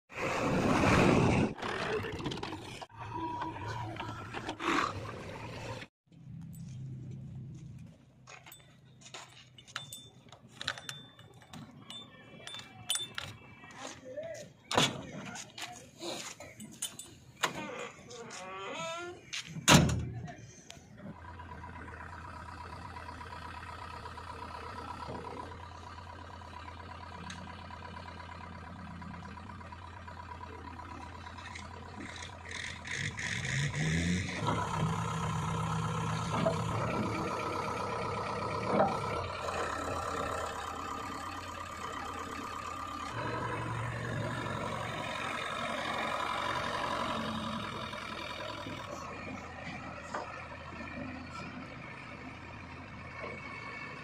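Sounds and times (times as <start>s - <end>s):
diesel engine running: 19.2s - 54.0s.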